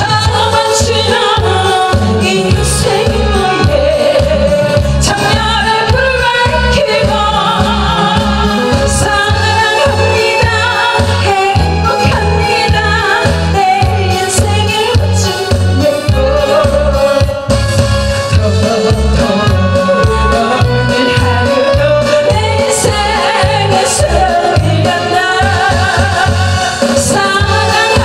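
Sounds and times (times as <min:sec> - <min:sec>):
loud backing music: 0:00.0 - 0:28.0
woman singing into microphone: 0:00.0 - 0:28.0
pulsing bass beat: 0:00.3 - 0:28.0.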